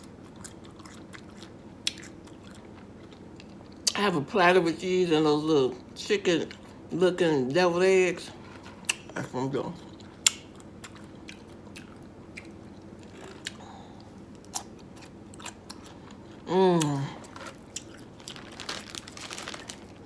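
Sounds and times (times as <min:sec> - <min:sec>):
crunchy biting and chewing: 0:00.0 - 0:04.0, 0:09.9 - 0:19.8
plastic zip bag rustling: 0:17.3 - 0:20.0.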